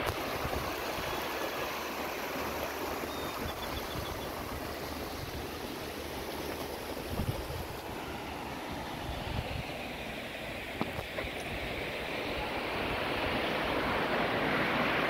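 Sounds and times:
river rushing over rocks: 0.0s - 15.0s
wind rumbling on microphone: 6.6s - 7.9s, 8.7s - 10.0s.

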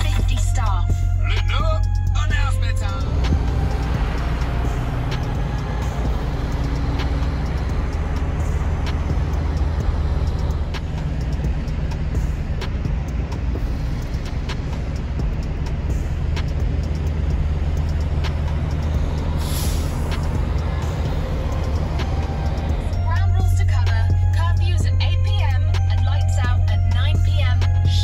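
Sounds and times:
truck diesel engine droning: 0.0s - 28.0s
air hiss: 19.4s - 20.2s.

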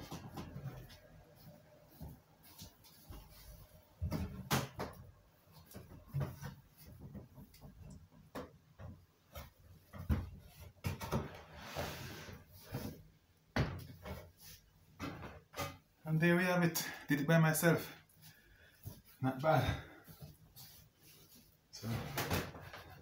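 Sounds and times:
rustling scrape: 11.5s - 13.0s.

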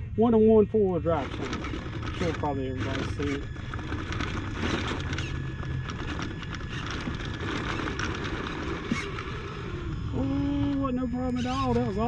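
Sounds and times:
toy car tyres scrabbling: 1.0s - 12.0s
chassis scraping on stone: 1.2s - 9.6s.

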